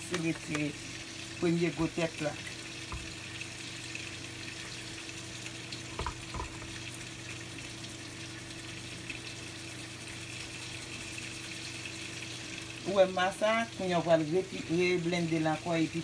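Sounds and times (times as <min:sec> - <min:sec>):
sieve tapping dish: 0:05.9 - 0:06.7.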